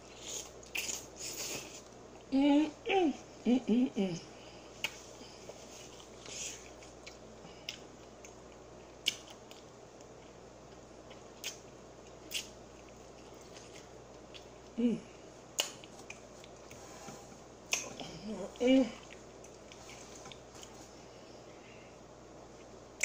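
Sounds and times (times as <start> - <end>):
person humming: 2.3 - 4.4, 14.8 - 15.1, 18.0 - 19.1
wet mouth clicks and lip smacks: 9.0 - 9.6.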